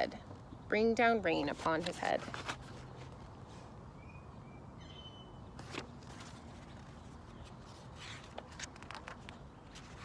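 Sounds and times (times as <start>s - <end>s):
paper book rustling and clicking: 1.5s - 3.3s, 5.6s - 10.0s.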